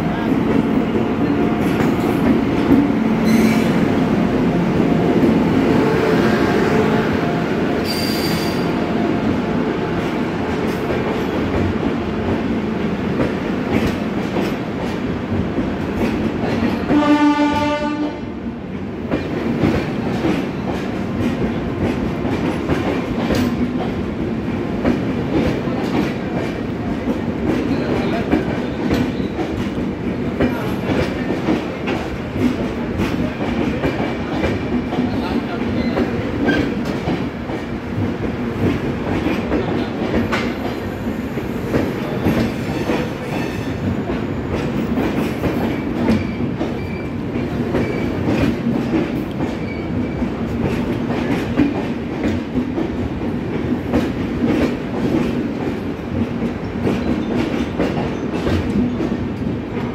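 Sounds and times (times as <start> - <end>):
train wheels clattering on track: 0.0 - 59.9
train horn: 16.9 - 18.3.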